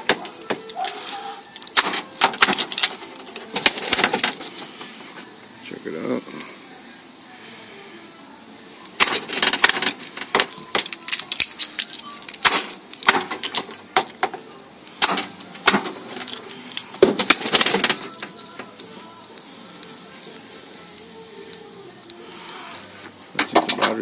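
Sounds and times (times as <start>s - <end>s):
keys clicking against truck door: 0.0s - 5.3s, 8.8s - 24.0s
keychain jangling: 10.4s - 13.8s.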